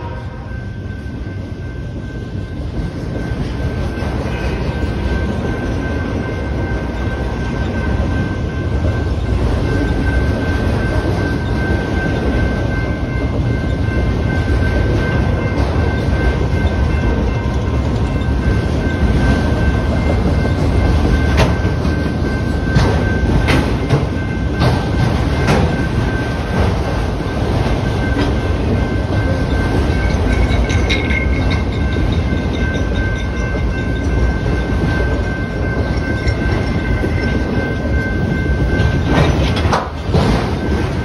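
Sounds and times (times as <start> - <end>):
train cars clanking: 0.0 - 41.0
train wheels rumbling on rail: 0.0 - 41.0.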